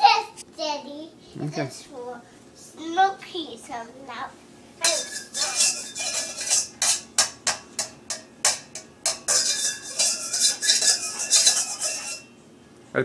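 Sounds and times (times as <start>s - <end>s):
utensil clanking in metal colander: 4.8s - 12.3s.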